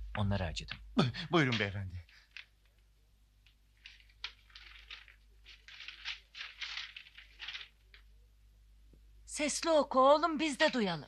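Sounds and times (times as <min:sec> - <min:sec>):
newspaper rustling: 0:01.5 - 0:02.9, 0:03.6 - 0:08.2.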